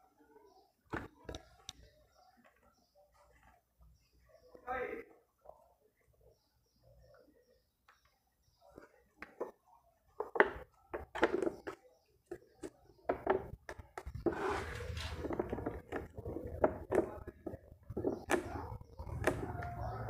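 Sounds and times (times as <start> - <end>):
rough rubbing and handling noise: 8.6 - 20.0.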